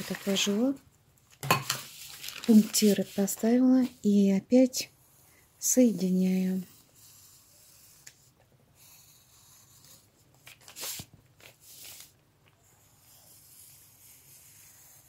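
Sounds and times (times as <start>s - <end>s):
paper sheets rustling and crinkling: 0.0s - 0.8s, 1.6s - 4.0s, 10.4s - 12.2s
pencil scratching on paper: 2.7s - 10.2s, 12.6s - 15.0s.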